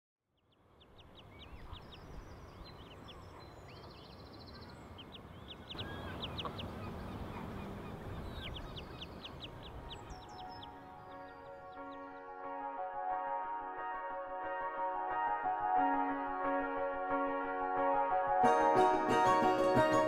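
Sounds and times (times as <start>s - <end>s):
birds chirping: 0.5s - 12.7s.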